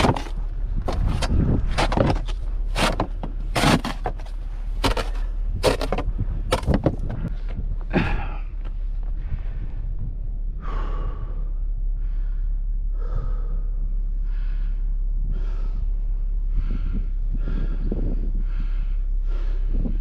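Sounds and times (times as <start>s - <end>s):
steady low rumble: 0.0s - 20.0s
person breathing hard: 7.0s - 20.0s.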